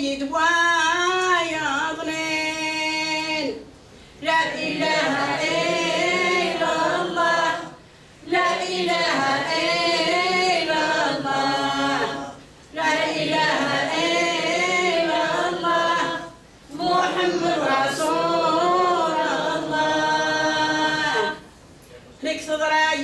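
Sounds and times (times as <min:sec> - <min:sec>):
elderly woman singing a chant: 0:04.2 - 0:21.4.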